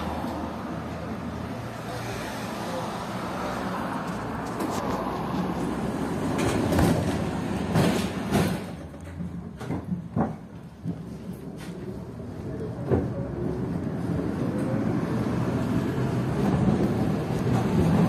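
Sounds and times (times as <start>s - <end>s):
tram rumble and hum: 0.0s - 18.0s
tram wheels clacking and knocking: 4.0s - 18.0s.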